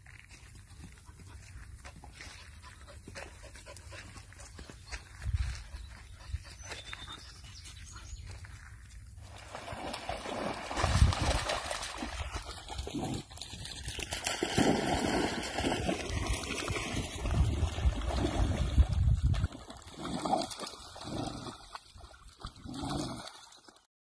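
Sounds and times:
dogs splashing through water: 0:09.2 - 0:23.9.

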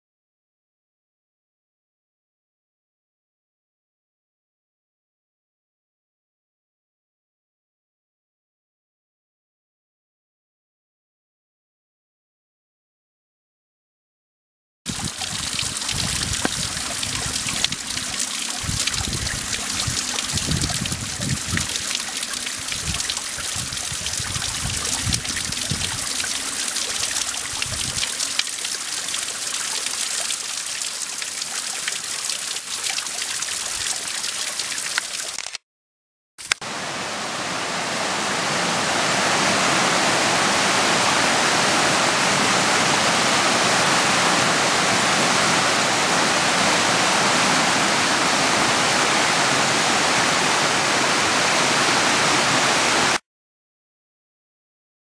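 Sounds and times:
rushing water: 0:14.9 - 0:35.4, 0:36.6 - 0:53.2
stream trickling over rocks: 0:14.9 - 0:35.4.

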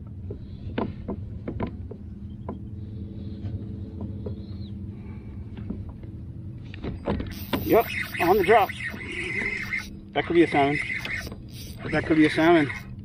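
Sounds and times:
steady low hum: 0:00.0 - 0:13.0
fishing reel clicks: 0:07.3 - 0:09.9, 0:10.8 - 0:12.9.

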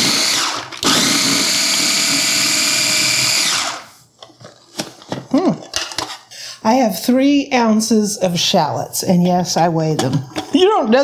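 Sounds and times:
food chopper motor whining: 0:00.0 - 0:03.9.

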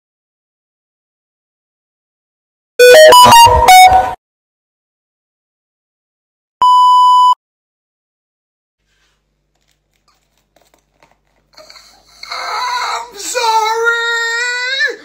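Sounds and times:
electronic beep: 0:02.8 - 0:04.2, 0:06.6 - 0:07.4.

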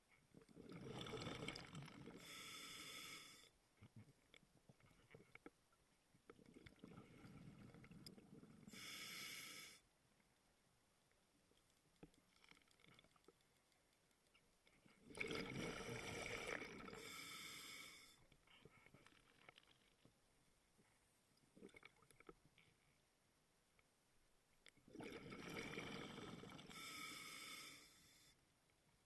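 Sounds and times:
regulator hissing inhale: 0:02.2 - 0:03.5, 0:08.7 - 0:09.8, 0:17.0 - 0:18.2, 0:26.7 - 0:28.4
exhaled bubbles rushing: 0:15.1 - 0:17.0, 0:24.9 - 0:26.7.

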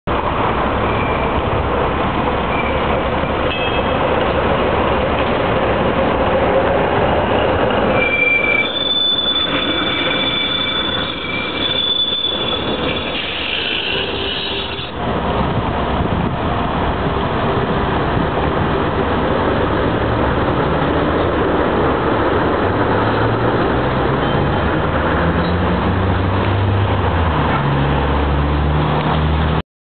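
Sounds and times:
road vehicles accelerating: 0:00.1 - 0:29.6
streetcar running noise: 0:00.1 - 0:29.6
steel wheels squealing on track: 0:00.8 - 0:01.5, 0:02.4 - 0:04.1, 0:07.0 - 0:15.0.

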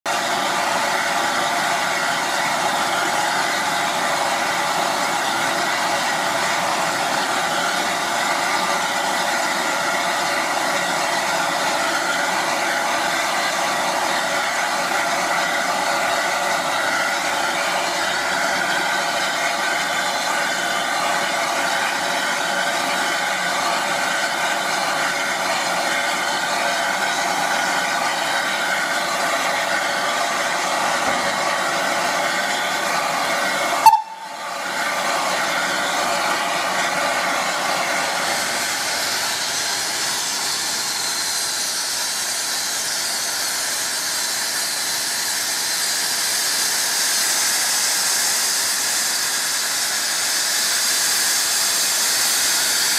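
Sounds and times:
steam locomotive hissing: 0:00.0 - 0:52.9.

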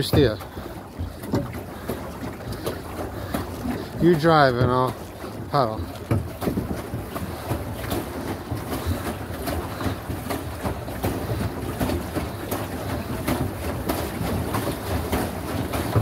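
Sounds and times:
paddle wheel churning water: 0:00.0 - 0:16.0.

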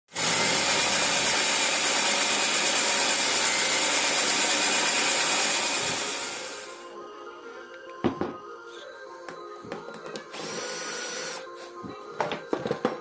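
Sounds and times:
belt sander whirring: 0:00.1 - 0:06.8.

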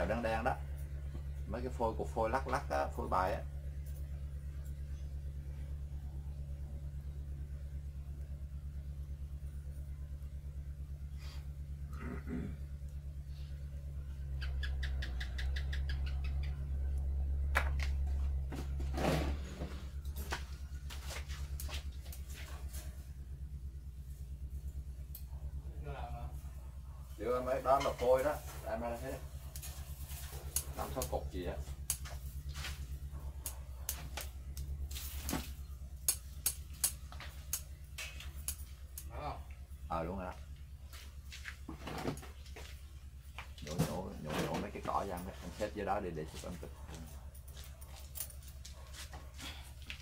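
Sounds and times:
pulsing low hum: 0:00.0 - 0:50.0
short sharp clicks and snaps: 0:36.0 - 0:39.1.

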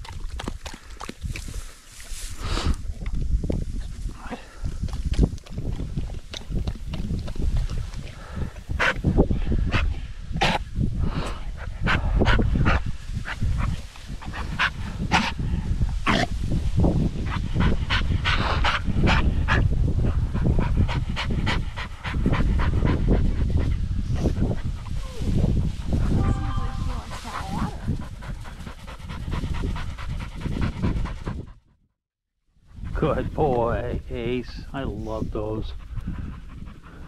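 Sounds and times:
wind rumble on microphone: 0:00.0 - 0:31.8, 0:32.6 - 0:37.0
dog panting hard: 0:04.6 - 0:10.6, 0:11.6 - 0:15.7, 0:17.2 - 0:25.0, 0:27.0 - 0:31.8, 0:35.6 - 0:37.0.

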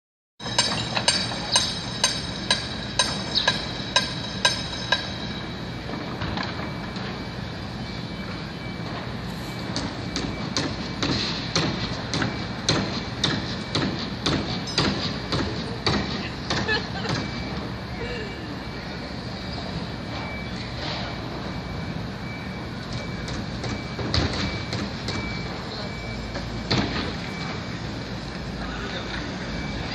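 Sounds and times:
hammer striking metal: 0:00.4 - 0:05.2, 0:09.8 - 0:17.3
city traffic noise: 0:00.4 - 0:29.9
steady background hum: 0:00.4 - 0:29.9.

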